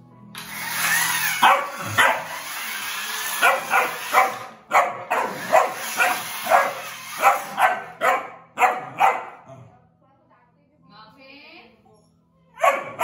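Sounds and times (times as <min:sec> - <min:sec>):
puppy barking: 0:01.4 - 0:02.4, 0:03.4 - 0:09.7, 0:12.6 - 0:13.0.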